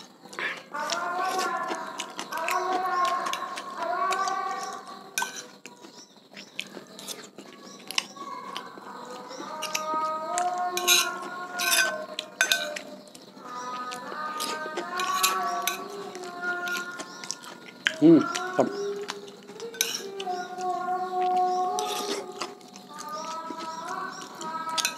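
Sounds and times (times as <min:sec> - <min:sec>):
chewing: 0:00.0 - 0:24.9
children singing faintly: 0:00.0 - 0:24.9
spoon scraping ceramic plate: 0:05.2 - 0:05.6, 0:10.7 - 0:12.9, 0:14.4 - 0:17.4, 0:19.6 - 0:20.3, 0:21.7 - 0:22.4.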